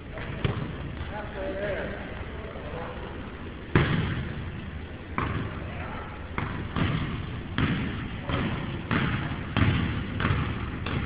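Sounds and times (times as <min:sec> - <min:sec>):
basketball bouncing: 0:00.2 - 0:01.1, 0:03.7 - 0:04.4, 0:05.1 - 0:05.8, 0:06.4 - 0:11.0.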